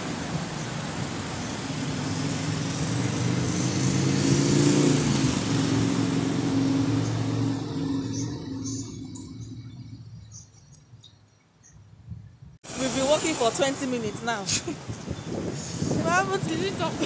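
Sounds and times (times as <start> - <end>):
vehicle engine passing: 1.6 - 10.3.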